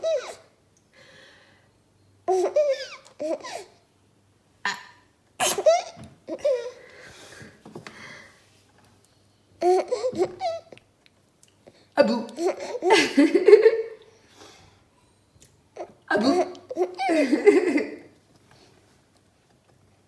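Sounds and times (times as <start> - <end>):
baby laughing hard: 5.4 - 6.8, 12.4 - 13.9, 16.2 - 18.0.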